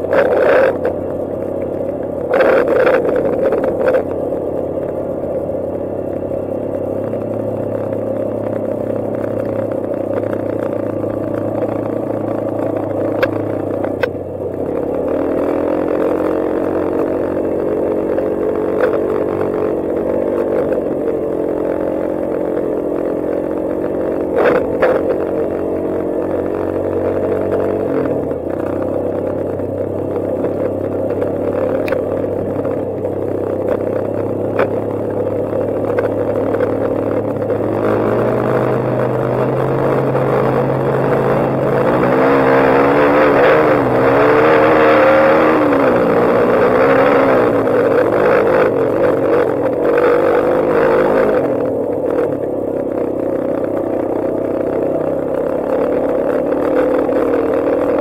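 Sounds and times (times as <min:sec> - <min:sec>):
quad engine running: 0:00.0 - 0:58.0.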